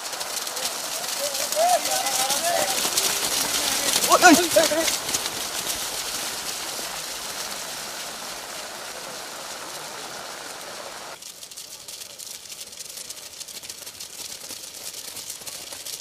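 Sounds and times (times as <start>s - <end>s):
crowd voices: 0.0s - 11.2s
rain falling: 0.0s - 16.0s
raindrops tapping close by: 0.0s - 16.0s.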